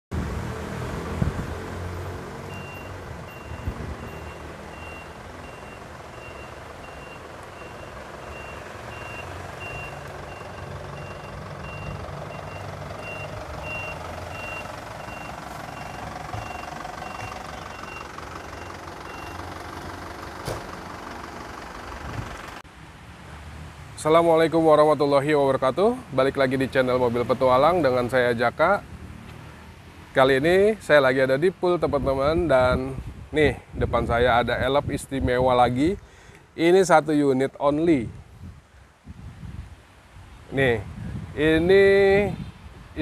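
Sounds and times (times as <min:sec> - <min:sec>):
engine running low rumble: 0:00.1 - 0:23.5
reversing alarm beeps: 0:02.5 - 0:19.4.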